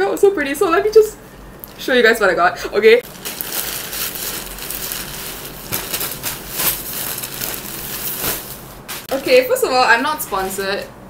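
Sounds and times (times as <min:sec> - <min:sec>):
plastic packaging crinkling: 0:03.0 - 0:09.4.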